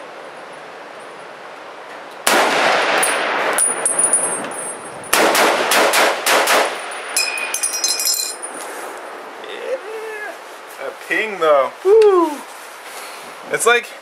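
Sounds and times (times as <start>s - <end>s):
rifle shots with echo: 2.2s - 3.6s, 5.1s - 6.9s.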